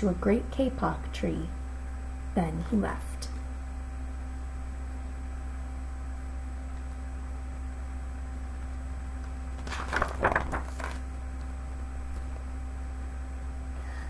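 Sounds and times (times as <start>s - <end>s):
steady background hum: 0.0s - 14.0s
book page turning: 9.6s - 11.2s.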